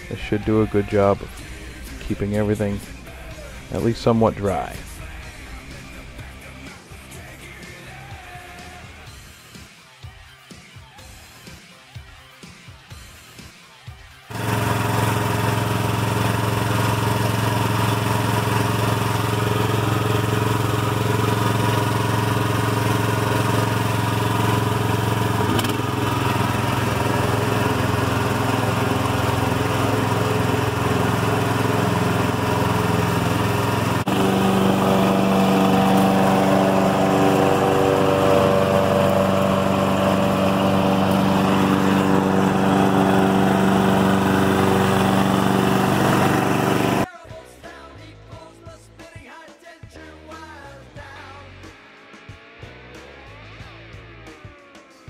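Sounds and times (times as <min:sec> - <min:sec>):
gasoline engine running: 0:00.0 - 0:09.1, 0:14.3 - 0:47.1.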